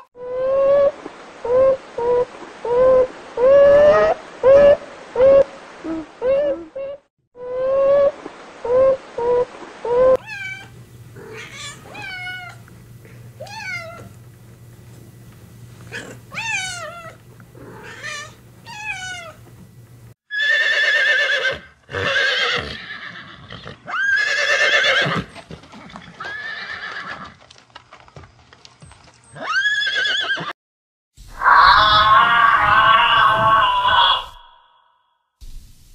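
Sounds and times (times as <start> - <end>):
horses neighing: 20.3 - 27.4, 29.3 - 30.5, 31.4 - 34.6
high squeaky animal calls: 31.4 - 34.8.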